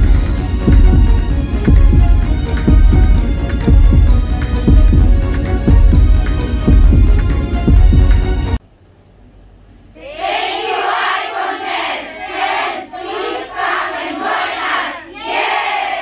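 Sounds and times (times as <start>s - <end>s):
background music: 0.0s - 8.6s
crowd shouting and cheering: 10.0s - 16.0s.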